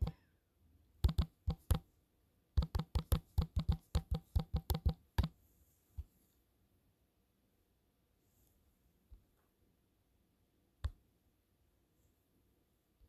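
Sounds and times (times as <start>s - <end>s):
touchscreen typing taps: 1.0s - 1.8s, 2.6s - 5.3s.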